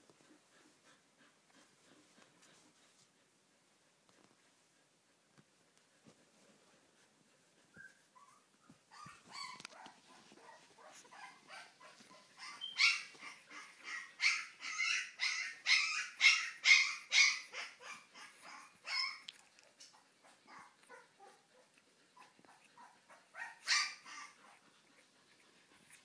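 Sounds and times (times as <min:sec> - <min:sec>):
puppy yelping: 0:07.7 - 0:24.7.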